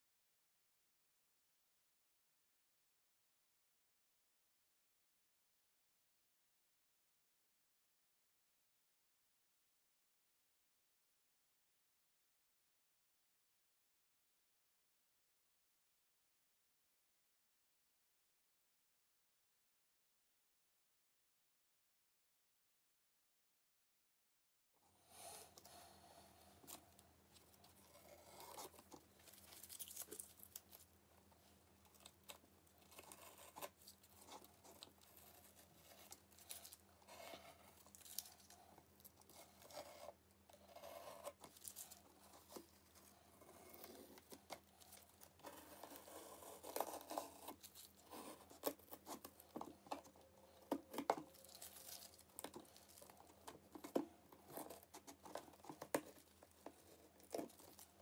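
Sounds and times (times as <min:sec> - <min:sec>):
tape crinkling: 0:26.6 - 0:31.0, 0:31.8 - 0:39.7, 0:41.3 - 0:43.1, 0:43.7 - 0:57.9.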